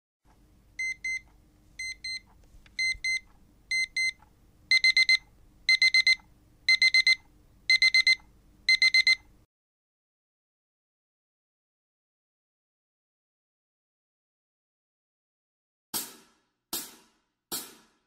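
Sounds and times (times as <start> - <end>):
electronic alarm beeping: 0.8 - 9.3.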